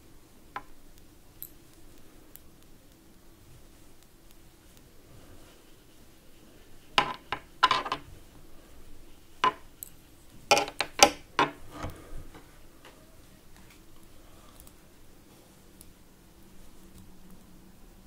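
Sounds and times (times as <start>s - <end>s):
metal knitting needles clicking: 9.4s - 11.5s.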